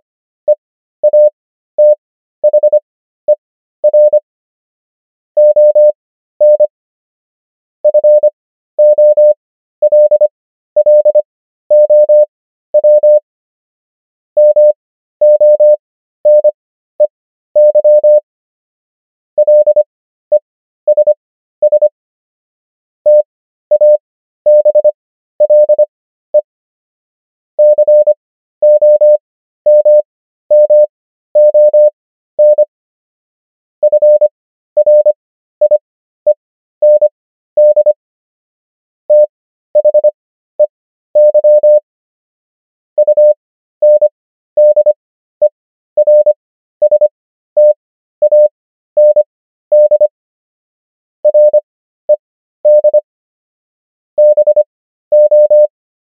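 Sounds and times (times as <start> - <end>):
morse code beeps: 1.0 - 4.2, 5.4 - 6.7, 7.9 - 13.2, 14.4 - 16.6, 17.6 - 18.2, 19.4 - 19.9, 20.9 - 21.9, 23.1 - 25.8, 27.6 - 32.7, 33.8 - 35.8, 36.8 - 38.0, 39.1 - 40.2, 41.2 - 41.8, 43.0 - 50.2, 51.2 - 53.0, 54.2 - 55.7.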